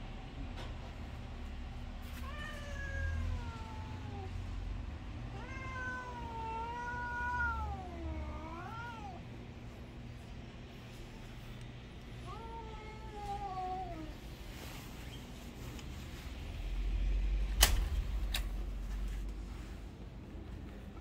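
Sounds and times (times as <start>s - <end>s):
cat yowling: 2.2s - 4.4s, 5.3s - 9.2s.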